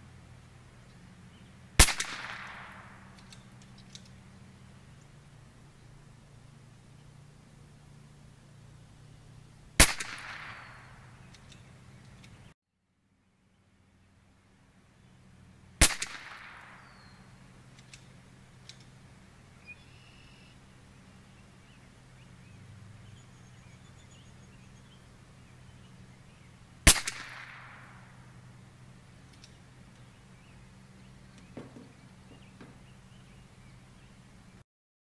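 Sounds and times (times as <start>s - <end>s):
rifle shots with echo: 1.8s - 3.5s, 9.8s - 11.2s, 15.8s - 17.2s, 26.8s - 28.4s
faint bird chirps: 19.6s - 26.6s.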